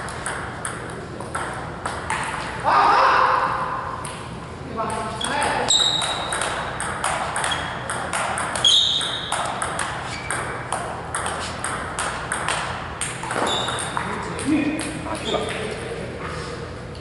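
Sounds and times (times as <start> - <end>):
table tennis ball clicking: 5.8 - 15.6.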